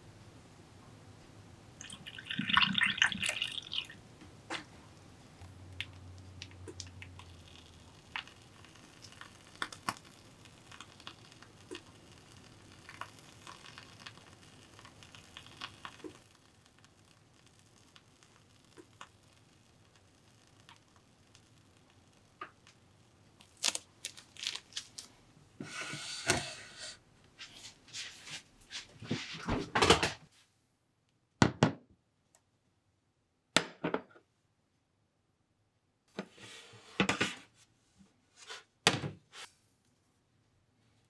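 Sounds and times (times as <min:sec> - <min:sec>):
liquid splashing into glass: 0:01.8 - 0:04.0
piping bag squelches and clicks: 0:23.4 - 0:25.1.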